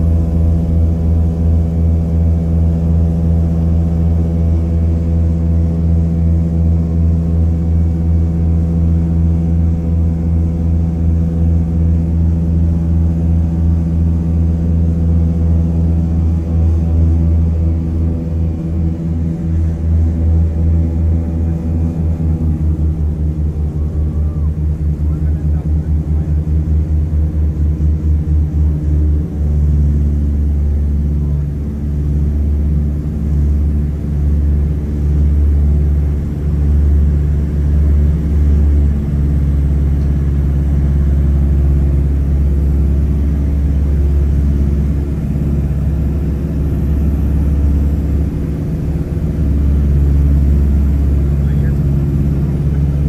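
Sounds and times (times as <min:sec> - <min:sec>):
twin aircraft engines droning: 0:00.0 - 0:53.0.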